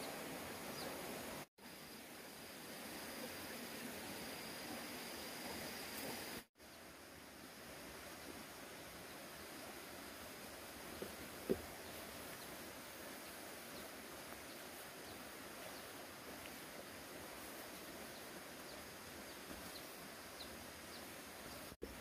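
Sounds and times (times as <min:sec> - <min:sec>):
steady outdoor hiss: 0:00.0 - 0:22.0.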